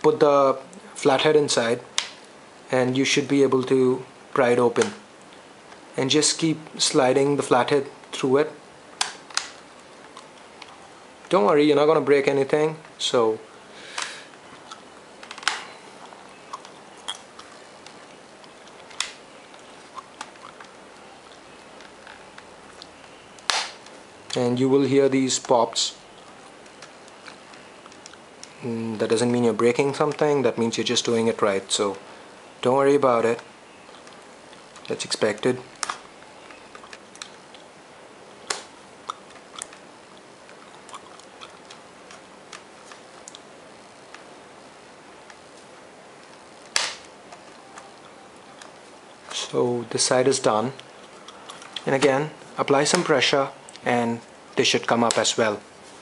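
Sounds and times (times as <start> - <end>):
plastic clips popping loose: 9.0 - 10.7, 15.2 - 15.8, 23.4 - 24.4, 35.3 - 37.4, 46.3 - 47.1
plastic snap clips popping: 23.4 - 23.9, 46.3 - 47.1.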